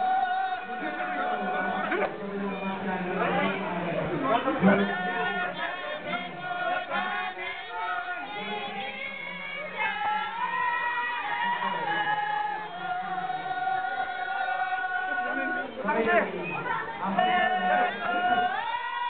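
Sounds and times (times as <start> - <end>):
women singing without instruments: 4.2 - 19.0.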